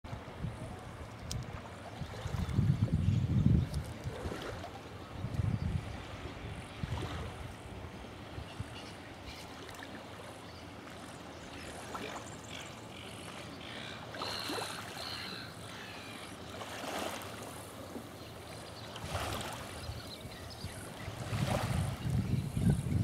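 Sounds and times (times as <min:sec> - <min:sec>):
water lapping: 0:00.1 - 0:03.0, 0:03.6 - 0:22.2
wind on microphone: 0:00.1 - 0:08.9, 0:19.0 - 0:23.0.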